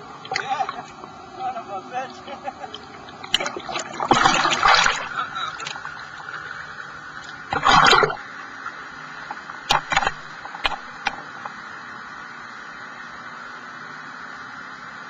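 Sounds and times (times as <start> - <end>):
steady hiss: 0.0 - 15.0
water splashing: 0.2 - 11.4.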